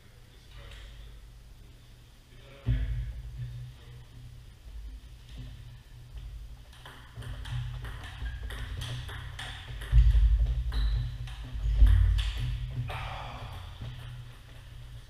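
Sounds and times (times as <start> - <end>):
table tennis ball clicking: 6.7 - 10.0.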